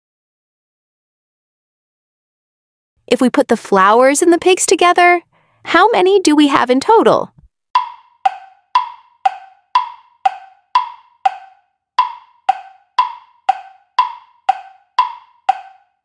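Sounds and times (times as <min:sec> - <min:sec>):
ticking clock: 0:07.8 - 0:16.0.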